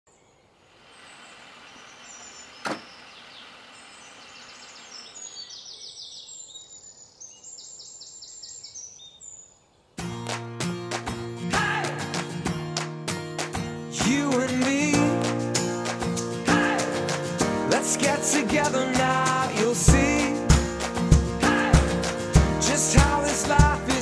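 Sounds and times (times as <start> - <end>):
small birds chirping: 0.1 - 10.0
guitar music: 10.0 - 24.0.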